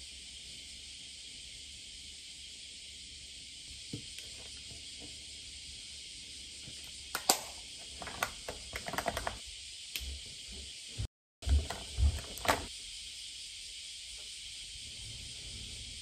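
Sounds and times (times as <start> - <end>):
steady high hiss: 0.0 - 16.0
plastic case clicking: 8.0 - 9.4.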